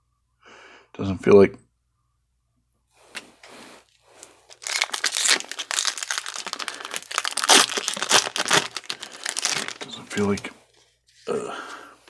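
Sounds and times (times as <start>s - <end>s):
foil wrapper crinkling and tearing: 4.2s - 10.4s.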